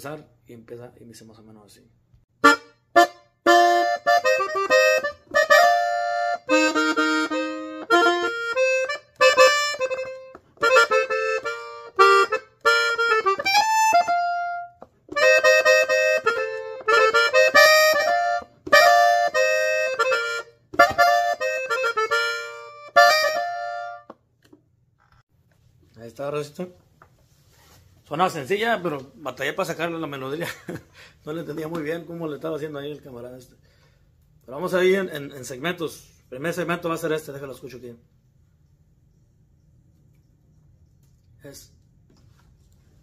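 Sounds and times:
button accordion melody: 2.4s - 24.2s.

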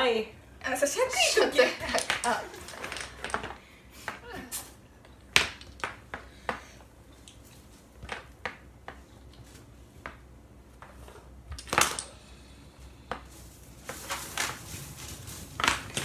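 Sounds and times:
dominoes clicking and clacking: 1.8s - 3.6s.

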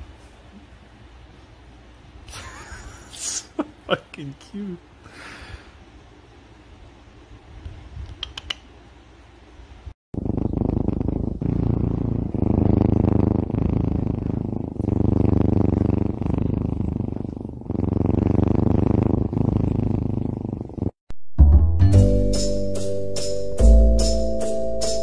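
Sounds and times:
kitten purring: 10.2s - 21.0s.

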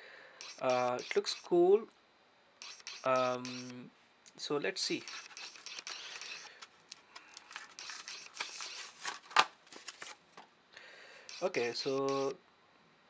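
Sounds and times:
plastic packaging crinkling: 6.0s - 10.3s.

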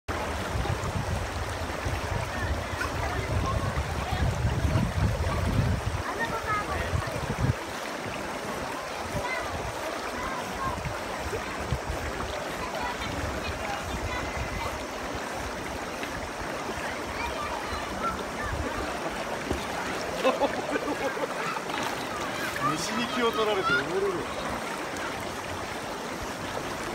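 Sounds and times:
river flowing: 0.1s - 26.9s.

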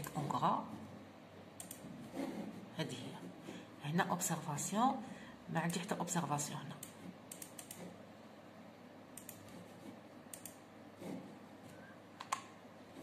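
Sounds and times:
computer keys and mouse clicks: 1.6s - 1.9s, 6.7s - 8.0s, 9.1s - 10.7s, 12.2s - 12.6s.

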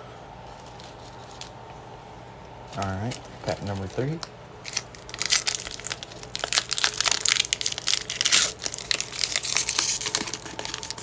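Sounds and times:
foil wrapper crinkling and tearing: 2.8s - 11.0s.

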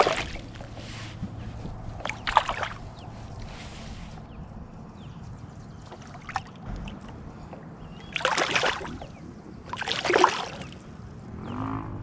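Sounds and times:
fish splashing at surface: 0.0s - 0.5s, 2.0s - 2.8s, 8.1s - 9.1s, 9.7s - 10.8s.

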